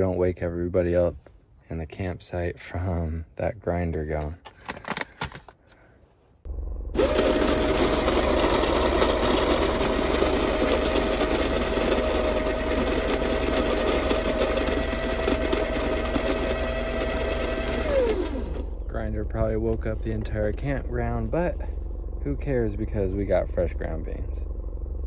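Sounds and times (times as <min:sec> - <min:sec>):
coffee grinder grinding beans: 0:06.9 - 0:18.8.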